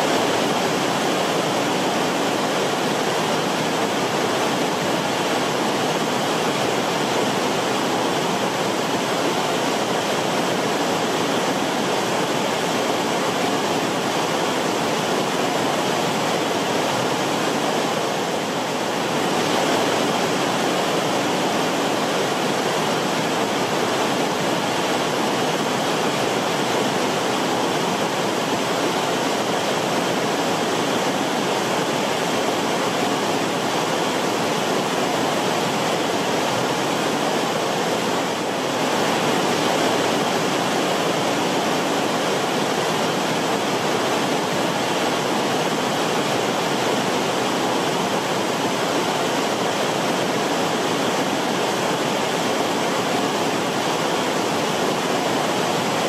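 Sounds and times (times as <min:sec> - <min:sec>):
river water rushing: 0:00.0 - 0:56.0.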